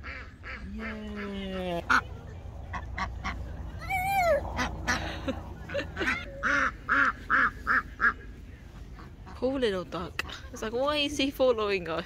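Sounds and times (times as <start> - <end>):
duck quacking: 6.0 - 8.2.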